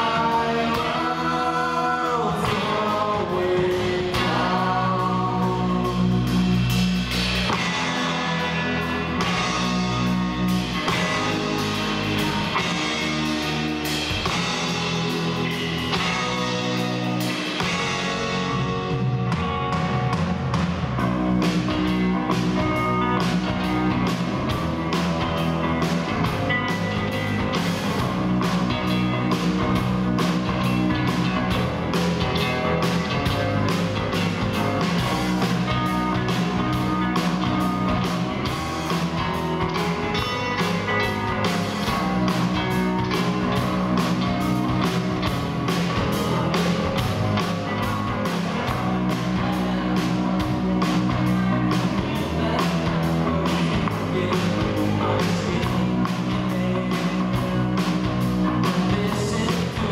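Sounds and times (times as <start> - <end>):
live rock band playing: 0.0 - 59.9
steady drum beat: 0.0 - 59.9.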